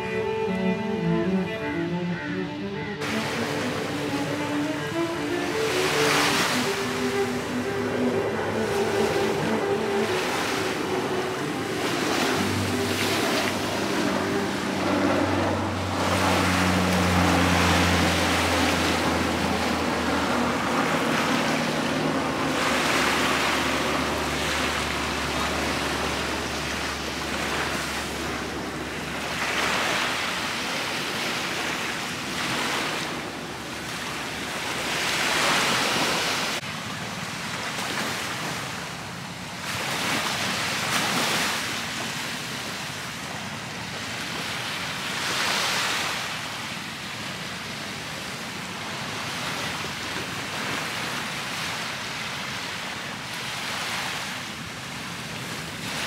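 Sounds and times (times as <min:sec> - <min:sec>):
low engine drone: 0:00.0 - 0:36.6
waves washing onto beach: 0:03.0 - 0:56.0.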